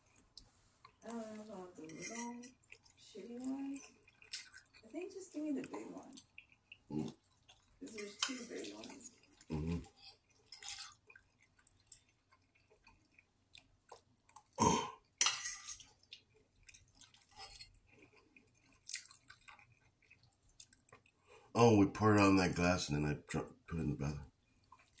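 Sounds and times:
person chewing food: 0.0 - 1.6, 2.4 - 21.5, 24.3 - 25.0
fork clicking on metal bowl: 1.9 - 2.6, 7.9 - 8.5.

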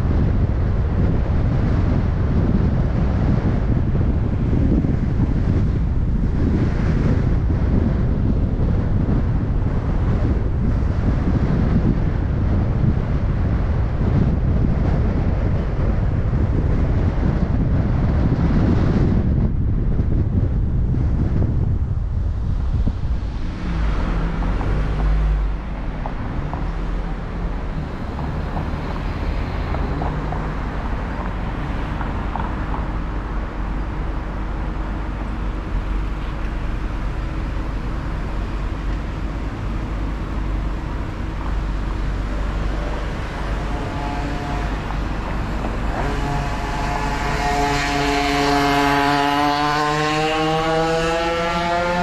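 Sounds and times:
low road rumble: 0.0 - 52.0
passing car engine revving: 22.4 - 52.0.

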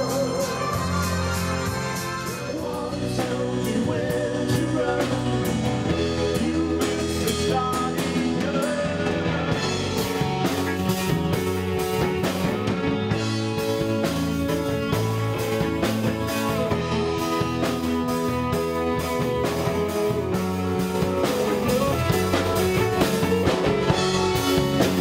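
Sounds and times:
person singing: 0.0 - 10.9
rock band playing: 0.0 - 25.0.

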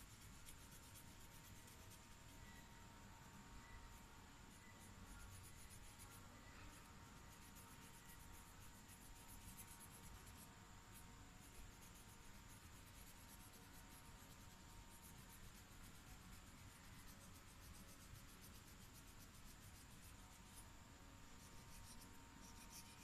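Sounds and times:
marker scratching on paper: 4.5 - 20.6, 21.3 - 23.0.

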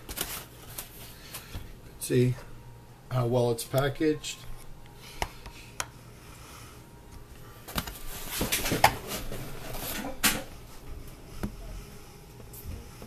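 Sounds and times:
packing paper rustling: 0.0 - 1.5.

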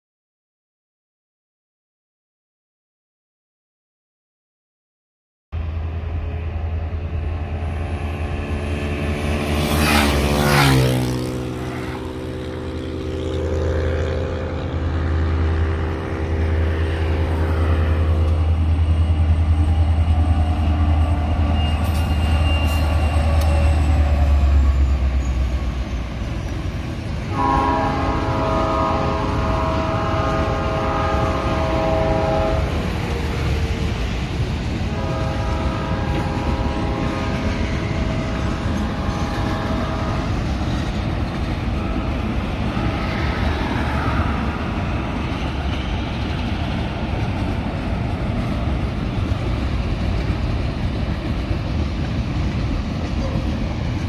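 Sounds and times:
vehicle passing: 7.6 - 18.8
locomotive air horn: 9.7 - 15.7, 27.3 - 32.9, 34.9 - 40.6, 41.6 - 44.3.

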